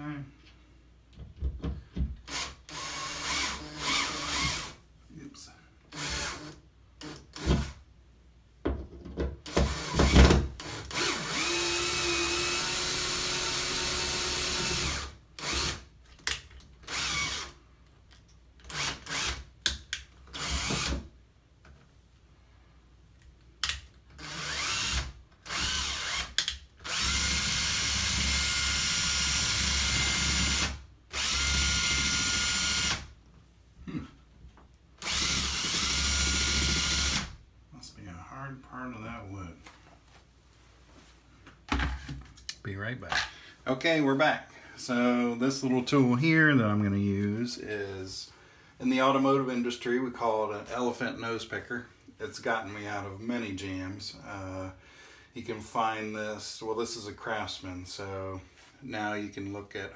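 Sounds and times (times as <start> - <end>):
cordless drill motor whine: 10.9 - 15.7, 24.2 - 25.0, 26.9 - 33.0.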